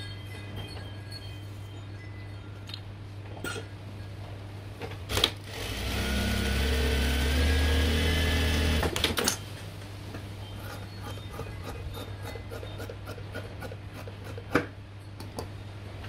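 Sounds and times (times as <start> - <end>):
sewing machine running: 5.1 - 9.2.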